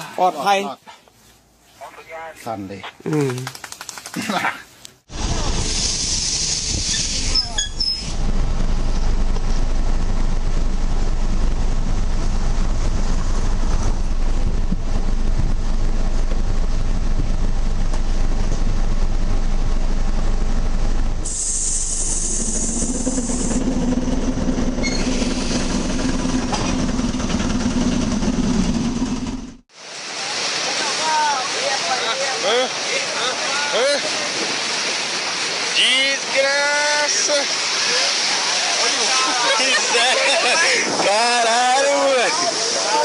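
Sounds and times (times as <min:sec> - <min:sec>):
train rumbling: 0:05.1 - 0:29.7
air hiss: 0:05.2 - 0:08.3, 0:21.2 - 0:23.6
train humming: 0:05.2 - 0:29.7.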